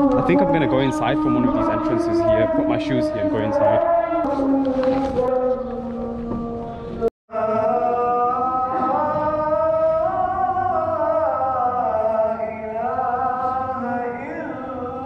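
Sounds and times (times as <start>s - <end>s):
man chanting melodic recitation: 0.0s - 6.1s.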